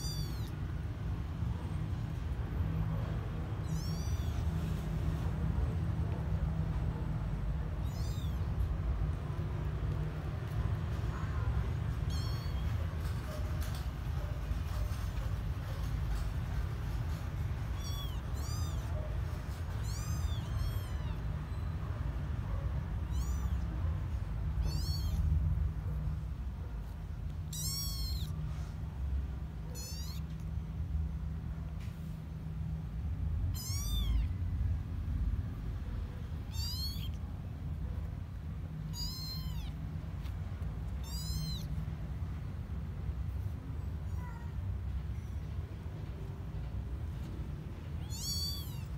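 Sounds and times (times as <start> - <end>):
kittens mewing: 0.0 - 0.9, 2.7 - 9.9, 10.5 - 30.9, 33.2 - 34.6, 35.9 - 42.2, 47.9 - 48.9.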